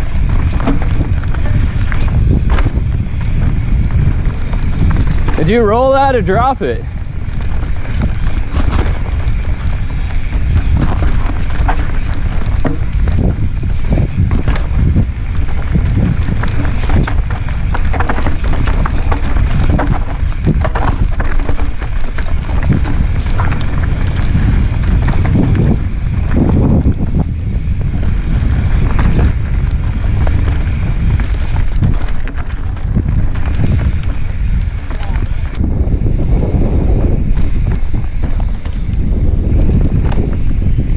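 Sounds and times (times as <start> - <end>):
bike frame clattering over rocks: 0.0 - 35.9, 36.8 - 40.9
wind buffeting microphone: 0.0 - 40.9.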